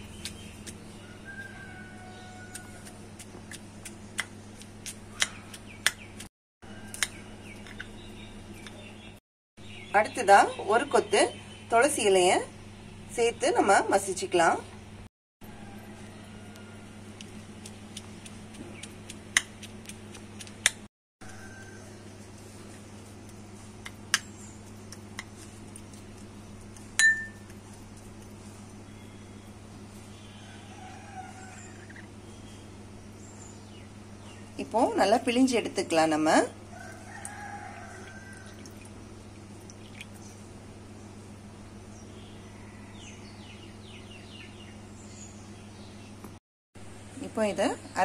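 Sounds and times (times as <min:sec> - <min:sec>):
steady low hum: 0:00.0 - 0:48.0
metal spoon clinking glass bowl: 0:27.0 - 0:27.4.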